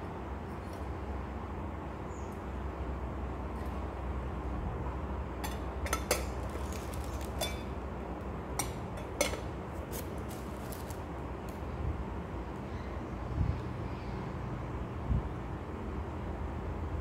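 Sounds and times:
glass teapot clinking: 7.4 - 7.8.

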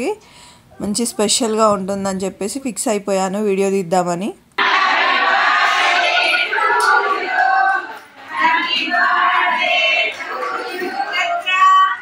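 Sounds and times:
women singing in chorus: 4.6 - 12.0.

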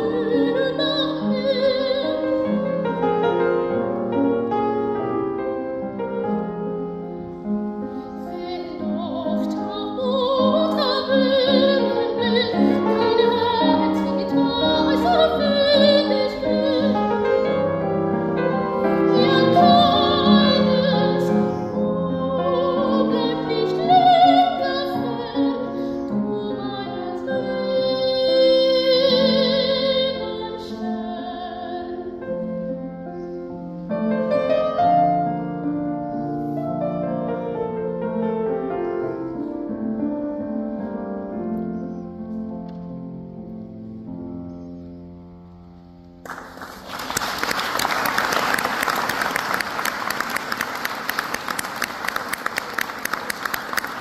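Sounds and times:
soprano singing with vibrato: 0.0 - 3.4, 8.2 - 32.2
piano accompaniment: 0.0 - 54.0.

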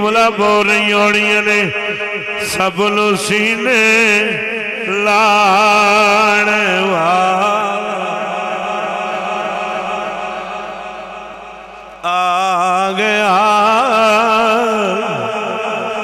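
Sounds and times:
man chanting: 0.0 - 16.0
low drone: 5.6 - 14.0.

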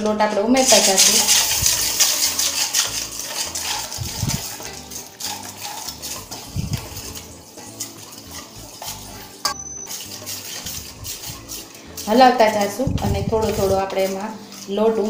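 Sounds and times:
whisk clinking in steel bowl: 0.6 - 15.0.

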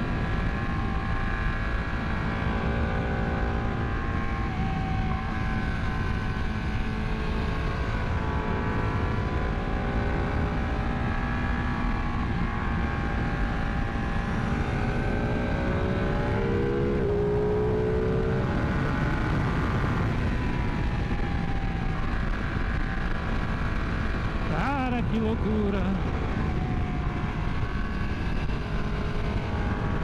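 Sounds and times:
motorcycle engine revving: 0.0 - 30.0
wind rush on microphone: 8.8 - 25.0.

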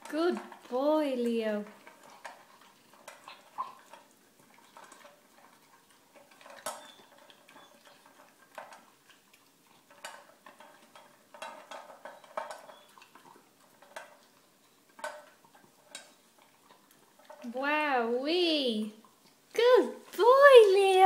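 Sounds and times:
puppy eating from metal bowl: 0.0 - 21.0.

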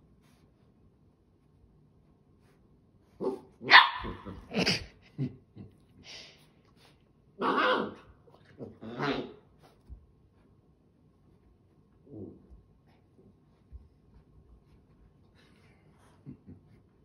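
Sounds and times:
dogs barking: 3.2 - 4.4.

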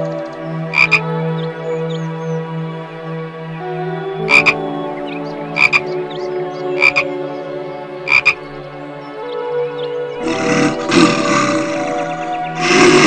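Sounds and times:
tree frog croaking: 0.7 - 1.1, 4.3 - 4.6, 5.6 - 5.9, 6.8 - 7.1, 8.1 - 8.5, 10.2 - 13.0.

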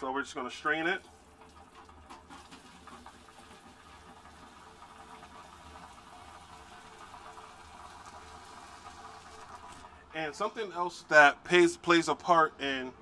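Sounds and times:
hot water pouring into strainer: 0.7 - 10.1.

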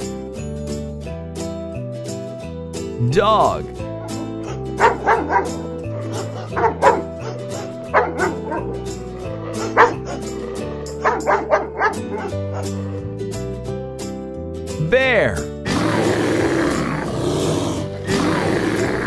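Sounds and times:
background music: 0.0 - 19.0
dog barking: 4.0 - 12.9.

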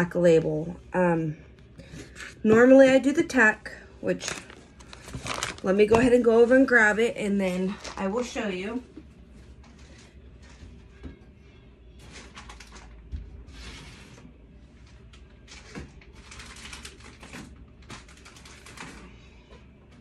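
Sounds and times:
rustling of packets: 4.2 - 6.2.

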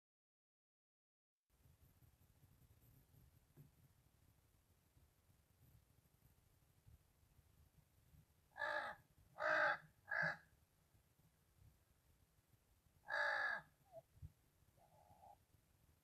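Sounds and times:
crow cawing: 8.6 - 10.5, 13.0 - 13.8.

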